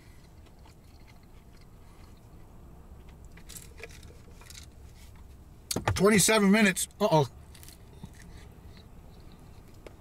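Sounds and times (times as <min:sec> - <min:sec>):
wet chewing sounds: 0:00.0 - 0:03.3
low steady rumble: 0:00.0 - 0:10.0.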